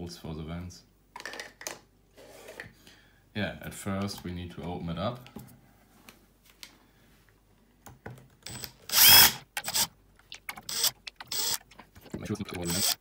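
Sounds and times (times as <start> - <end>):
electric screwdriver whirring: 8.5 - 9.9, 10.5 - 11.6, 12.5 - 13.0.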